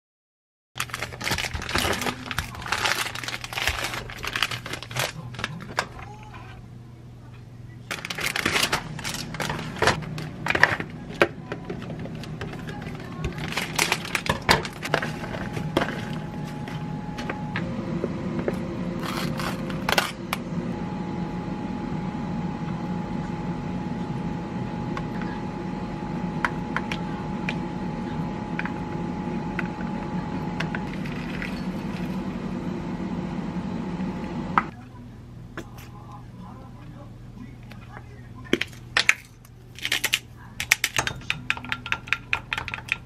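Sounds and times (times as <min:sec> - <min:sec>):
low hum with faint tone: 0:00.8 - 0:43.0
kitchenware clicks and taps: 0:40.6 - 0:43.0.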